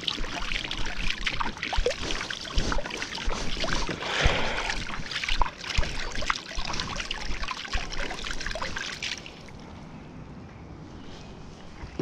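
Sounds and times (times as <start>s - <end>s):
moving water rushing: 0.0s - 9.7s
water splashing and trickling: 0.0s - 10.0s.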